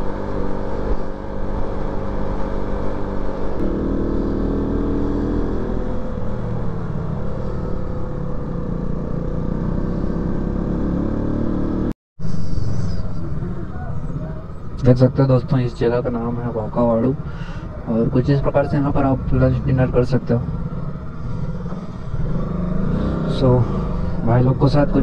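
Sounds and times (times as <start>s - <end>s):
motorcycle engine running: 0.0s - 14.6s
wind and road noise: 0.0s - 25.0s.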